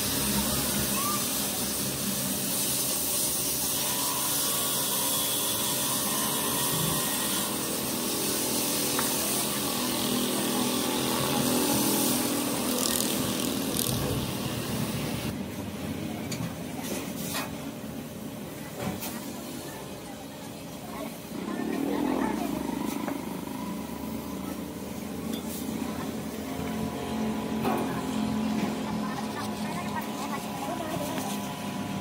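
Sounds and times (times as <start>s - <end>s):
loud hiss: 0.0s - 15.3s
steady machine noise: 0.0s - 15.4s, 21.0s - 32.0s.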